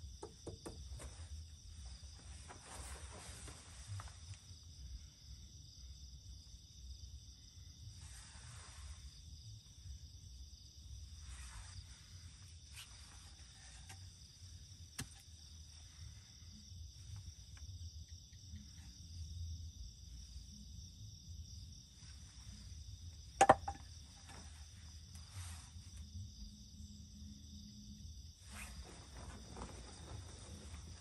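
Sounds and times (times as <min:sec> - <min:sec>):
night insects chorus: 0:00.0 - 0:31.0
rustling: 0:00.9 - 0:04.6, 0:11.0 - 0:14.6, 0:28.4 - 0:31.0.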